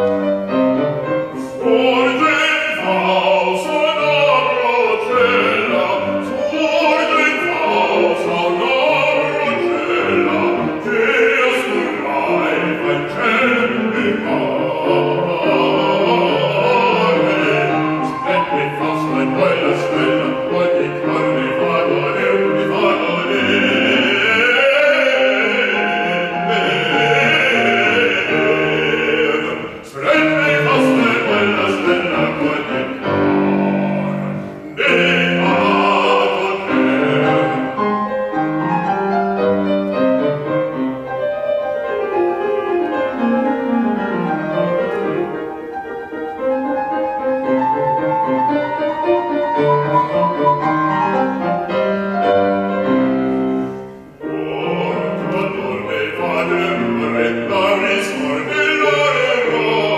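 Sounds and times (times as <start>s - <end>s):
grand piano playing: 0.0s - 59.9s
operatic baritone singing: 1.2s - 38.4s, 54.1s - 59.9s.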